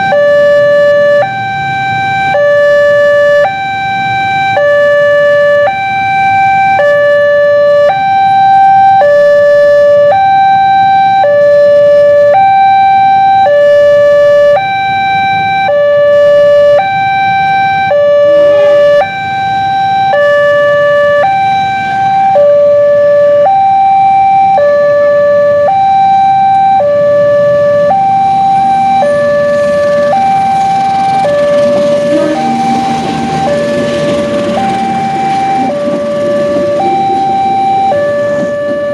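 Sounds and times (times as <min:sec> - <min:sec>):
level crossing two-tone alarm: 0:00.0 - 0:38.9
train rumble: 0:28.6 - 0:38.9.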